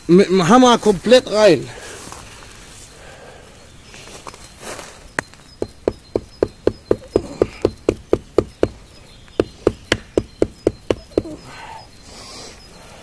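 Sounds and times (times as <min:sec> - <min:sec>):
hammer knocking on knife: 0:05.6 - 0:08.8, 0:09.4 - 0:11.3.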